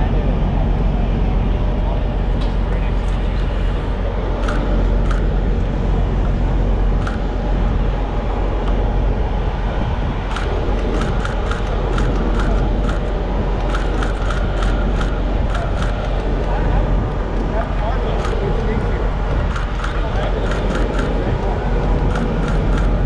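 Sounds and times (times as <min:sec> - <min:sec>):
loud low rumble: 0:00.0 - 0:23.0
quick sharp clicks: 0:10.3 - 0:16.2, 0:21.9 - 0:23.0.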